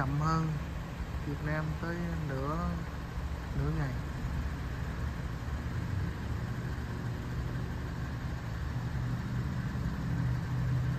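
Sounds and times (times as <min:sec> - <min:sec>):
vehicle engine idling: 0:00.0 - 0:10.9.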